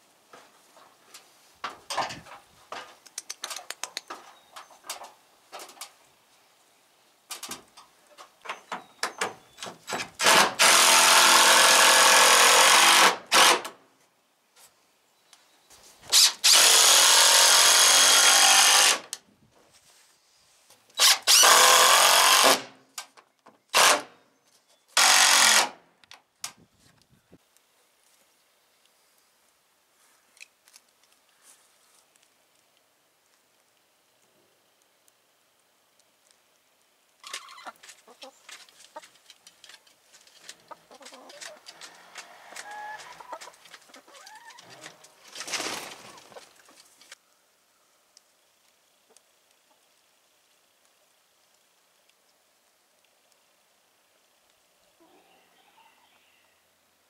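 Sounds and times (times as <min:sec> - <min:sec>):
faint scattered clicks: 0:02.3 - 0:06.0, 0:30.2 - 0:45.1, 0:48.1 - 0:53.5
cordless drill driving screws into wood: 0:09.9 - 0:13.8, 0:16.1 - 0:19.2, 0:21.0 - 0:22.7, 0:23.7 - 0:24.1, 0:25.0 - 0:25.8.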